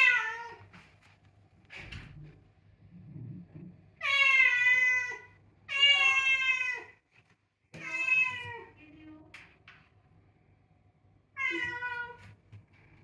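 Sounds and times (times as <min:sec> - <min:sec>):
cat meowing: 0:00.0 - 0:00.6, 0:04.0 - 0:07.0, 0:07.8 - 0:08.7, 0:11.4 - 0:12.3.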